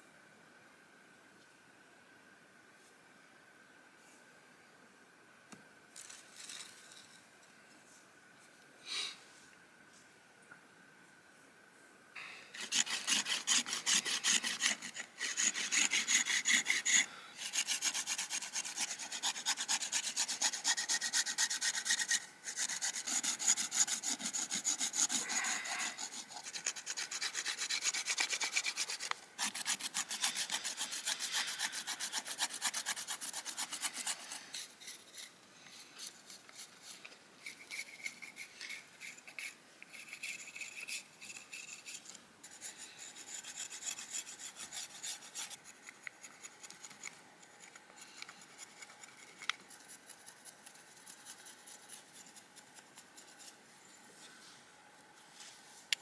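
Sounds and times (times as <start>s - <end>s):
stone scraping bark off stick: 12.6s - 35.4s, 36.0s - 53.5s.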